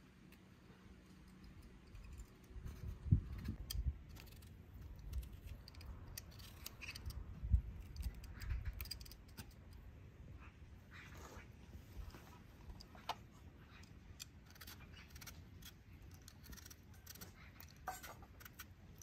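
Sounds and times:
vegetable peeler scraping turnip: 13.8s - 19.0s.

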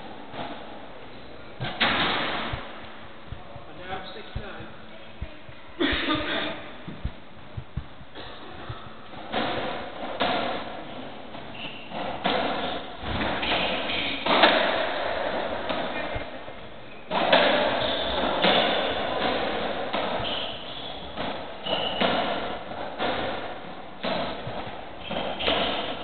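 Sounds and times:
ball struck by rackets: 1.6s - 2.7s, 9.1s - 16.3s, 17.1s - 26.0s.

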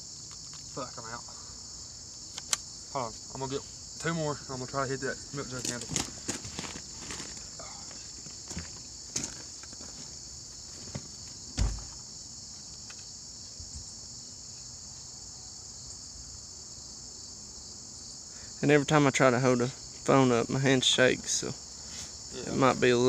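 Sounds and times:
insects chirping: 0.0s - 23.0s
dull thump: 10.9s - 12.0s.

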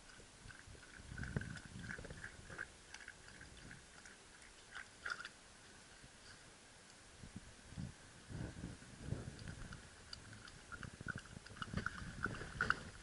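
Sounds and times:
dog lapping water: 0.0s - 5.4s, 9.3s - 13.0s.

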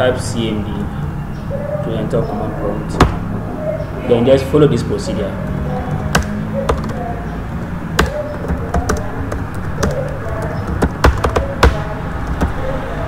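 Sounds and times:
keyboard keystroke clicks: 8.0s - 12.6s.

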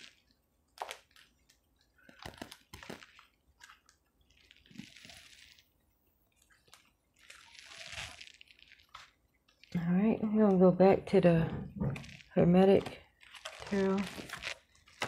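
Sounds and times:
cards clicking and rustling: 2.0s - 3.9s, 12.0s - 15.0s.

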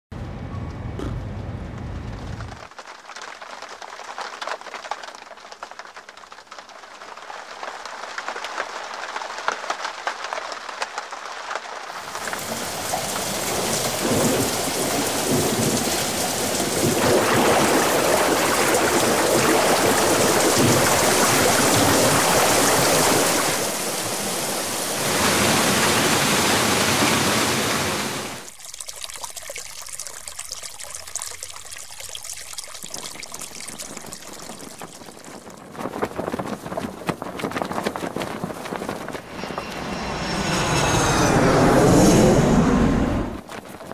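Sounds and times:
scattered raindrops: 1.9s - 27.5s, 28.3s - 39.7s, 43.3s - 43.9s
heavy rain: 2.4s - 28.6s.

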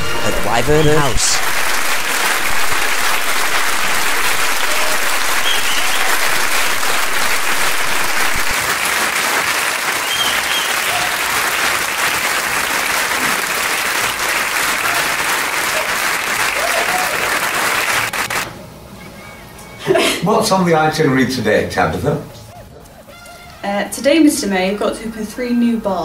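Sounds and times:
crowd applause: 0.0s - 18.5s.

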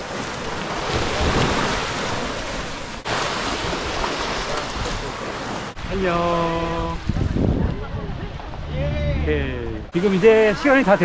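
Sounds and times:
small waves washing onto beach: 0.0s - 8.6s
wind on microphone: 5.8s - 9.9s.

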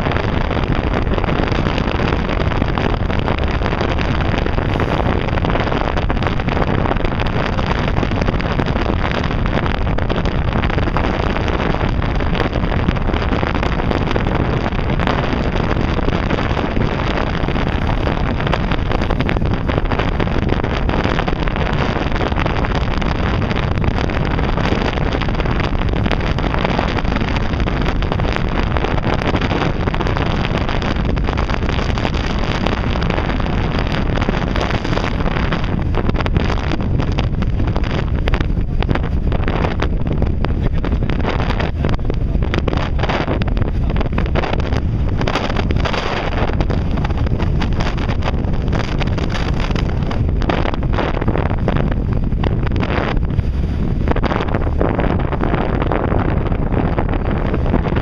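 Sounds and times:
water rushing: 0.0s - 58.0s
wind noise on microphone: 0.0s - 58.0s.

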